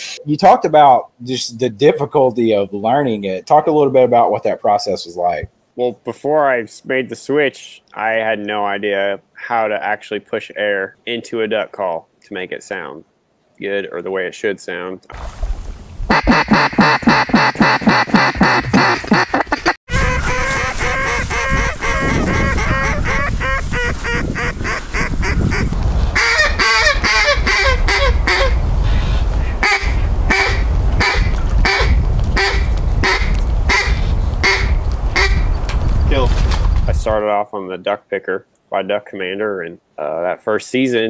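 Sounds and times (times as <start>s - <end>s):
duck call quacking: 16.1s - 35.5s
steady low rumble: 26.9s - 37.2s.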